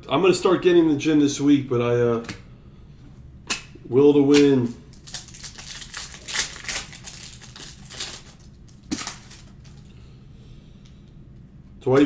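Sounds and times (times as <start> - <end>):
cards clicking and rustling: 4.4 - 9.9.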